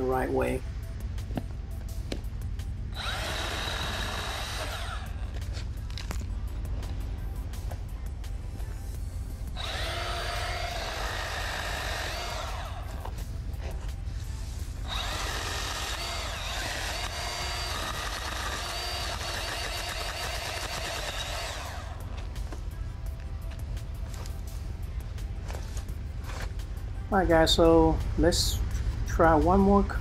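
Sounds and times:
electric chainsaw cutting branches: 0:02.9 - 0:06.2, 0:09.6 - 0:13.2, 0:14.8 - 0:22.2.

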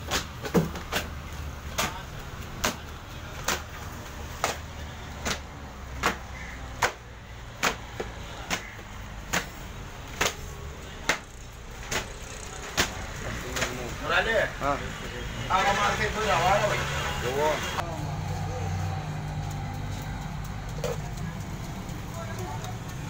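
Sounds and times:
sharp rhythmic knocks: 0:04.4 - 0:13.0.

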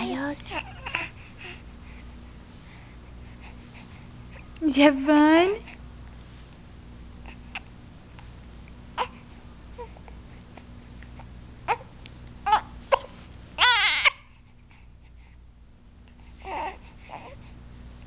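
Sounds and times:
baby cooing: 0:00.0 - 0:01.1, 0:12.5 - 0:14.2
baby squealing: 0:13.6 - 0:14.2.

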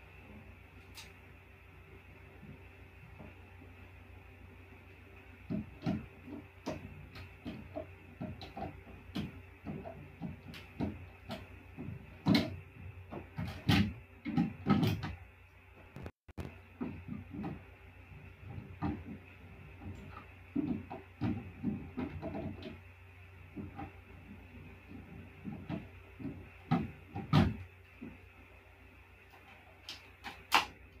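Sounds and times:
faint steady hum: 0:00.0 - 0:31.0
handling knocks taps and clicks: 0:05.4 - 0:15.2, 0:16.0 - 0:22.9.

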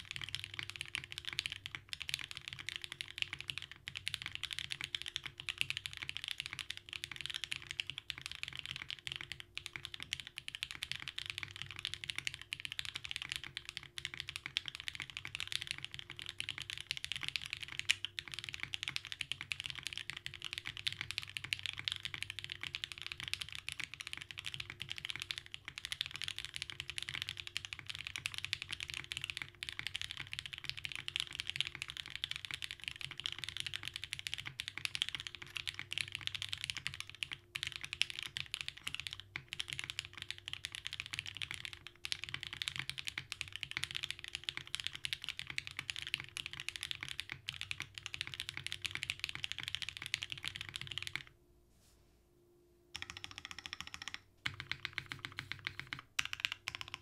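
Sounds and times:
mechanical keyboard typing: 0:00.0 - 0:51.3, 0:52.9 - 0:57.0.

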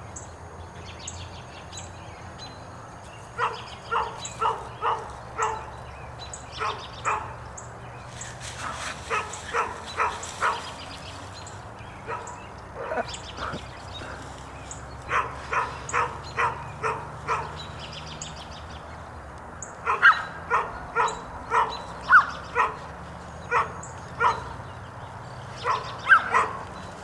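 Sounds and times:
dog barking: 0:03.4 - 0:05.7, 0:06.6 - 0:07.4, 0:08.6 - 0:10.8, 0:12.0 - 0:13.6, 0:15.1 - 0:17.7, 0:19.8 - 0:22.9, 0:23.5 - 0:24.6, 0:25.6 - 0:26.6.

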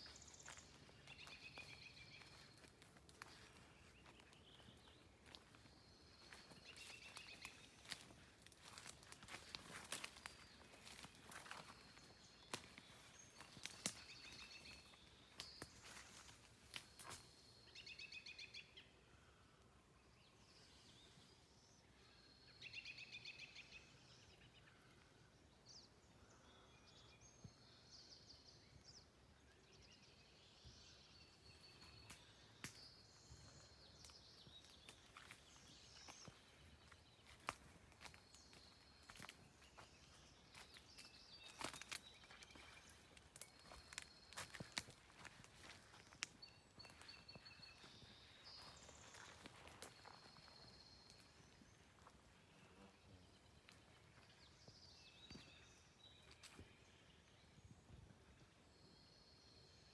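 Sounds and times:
footsteps on wood chips: 0:00.0 - 0:17.2, 0:34.0 - 0:50.6
trilling birdsong: 0:00.0 - 0:59.9.

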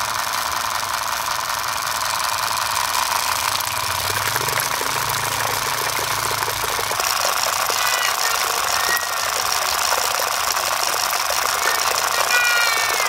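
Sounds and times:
model engine pump whining: 0:00.0 - 0:13.0
water splashing onto mud: 0:03.8 - 0:13.0.

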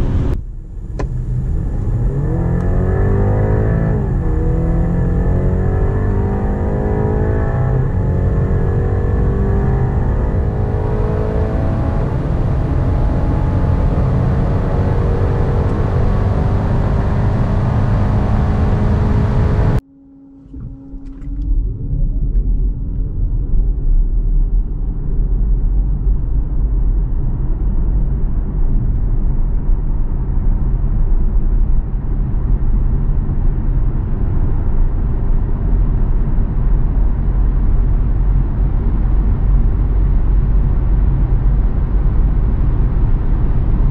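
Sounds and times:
car engine accelerating hard: 0:00.0 - 0:22.6
road noise: 0:00.0 - 0:26.0, 0:30.0 - 0:43.9.

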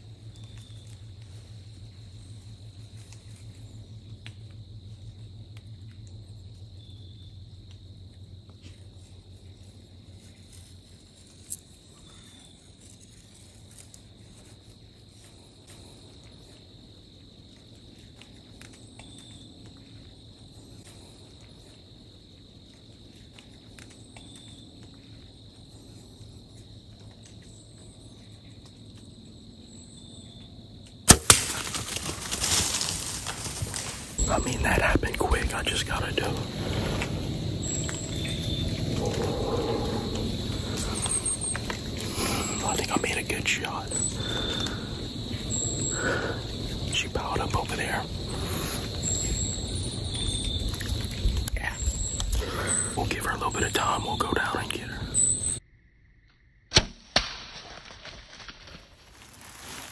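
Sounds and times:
high-pitched insect trill: 0:00.0 - 0:56.7.

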